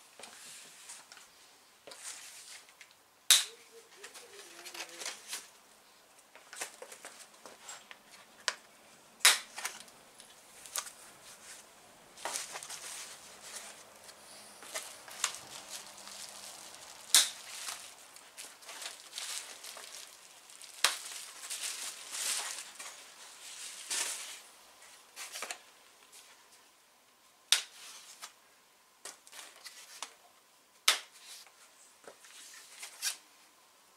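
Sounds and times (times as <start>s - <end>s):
plastic wrap rustling: 3.9s - 5.6s, 9.4s - 24.5s
hand cutter snapping through wrapping: 14.6s - 20.1s.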